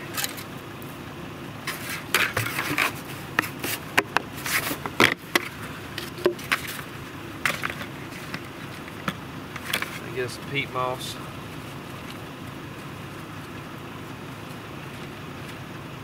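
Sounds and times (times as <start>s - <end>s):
gloved hands scraping dirt: 1.6s - 6.9s.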